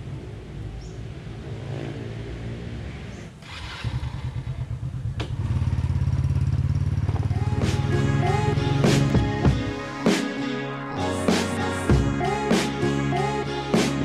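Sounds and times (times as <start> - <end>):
motor scooter engine: 0.0 - 8.9.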